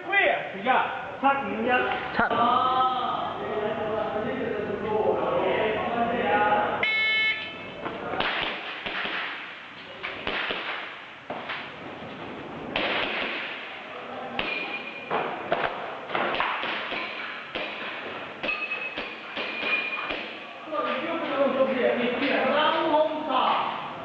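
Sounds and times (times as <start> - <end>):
short high pings: 6.8 - 7.7
airsoft pistol shots: 8.2 - 9.6, 10.2 - 11.0, 12.8 - 13.8.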